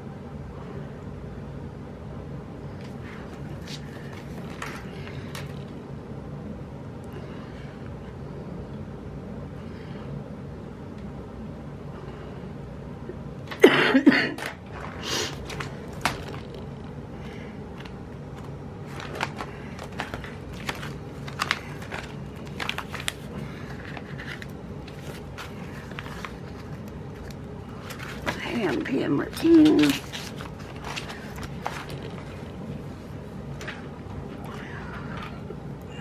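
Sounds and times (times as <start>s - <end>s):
steady low hum: 0.0s - 36.0s
paper crinkling rustle: 2.7s - 5.8s, 14.4s - 34.4s.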